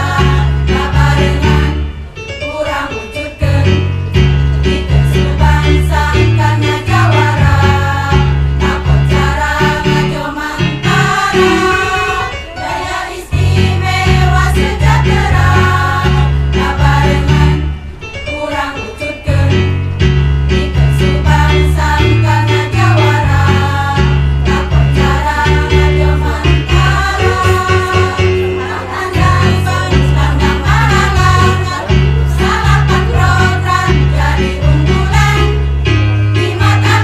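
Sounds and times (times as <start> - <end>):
women's choir singing: 0.0 - 3.9, 4.6 - 19.8, 20.7 - 37.0
instrumental accompaniment: 0.0 - 37.0.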